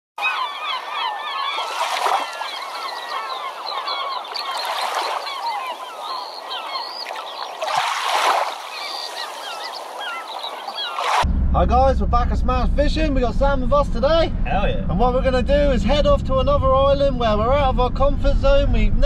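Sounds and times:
flock of birds calling: 0.2s - 11.2s.

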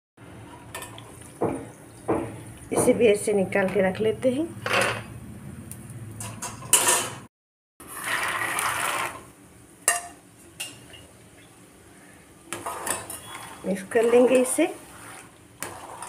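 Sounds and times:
peanuts sizzling in hot oil: 7.8s - 10.9s, 12.0s - 16.0s.

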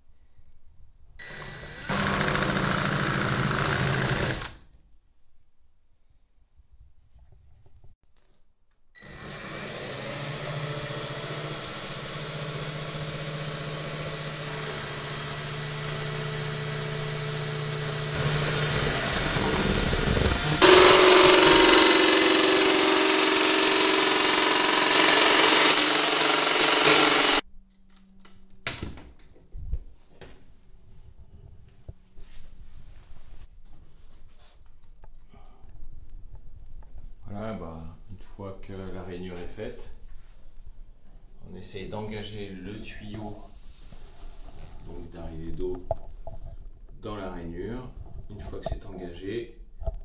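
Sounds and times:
electric drill boring: 1.2s - 4.6s, 9.0s - 27.4s.

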